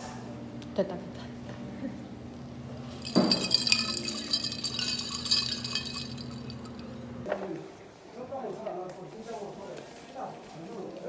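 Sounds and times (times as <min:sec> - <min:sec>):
ice cubes clinking in a cup: 0:02.9 - 0:07.0.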